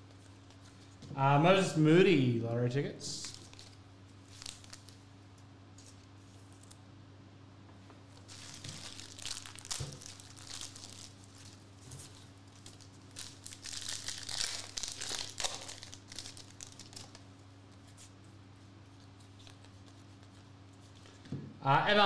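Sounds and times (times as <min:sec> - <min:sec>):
foil pack tearing and crinkling: 0:03.2 - 0:05.0, 0:08.2 - 0:17.2.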